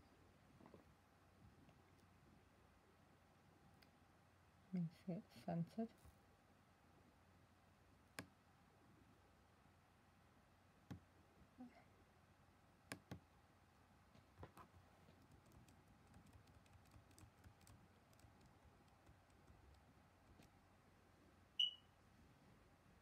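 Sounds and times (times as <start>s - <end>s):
laptop keys clicking: 12.9s - 13.2s, 14.6s - 20.5s
short high-pitched beep: 21.6s - 21.9s.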